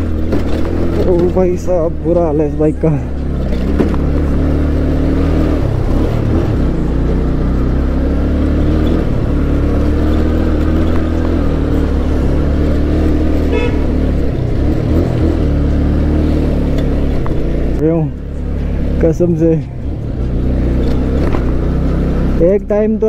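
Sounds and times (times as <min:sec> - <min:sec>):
motorcycle engine running: 0:00.0 - 0:23.0
horn beep: 0:13.4 - 0:14.0.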